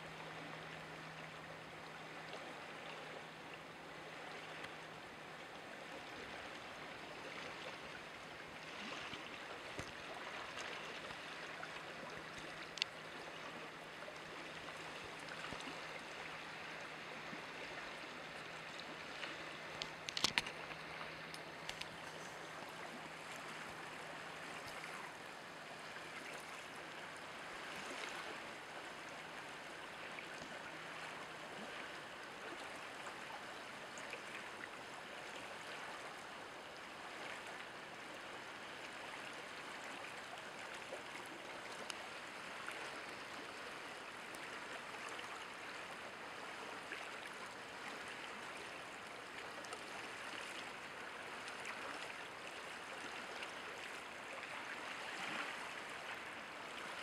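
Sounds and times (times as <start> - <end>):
rushing water noise: 0.0 - 57.0
cluster of clicks: 19.8 - 22.4.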